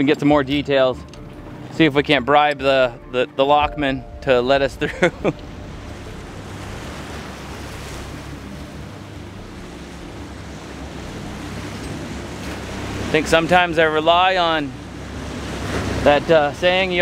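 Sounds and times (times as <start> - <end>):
boat motor humming: 0.0 - 17.0
water rushing past hull: 0.8 - 17.0
wind buffeting microphone: 3.0 - 13.2.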